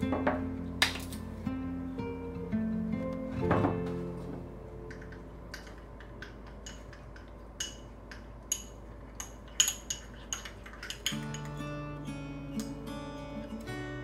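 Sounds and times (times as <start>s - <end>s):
cutlery clinking against dishes: 4.9s - 11.7s.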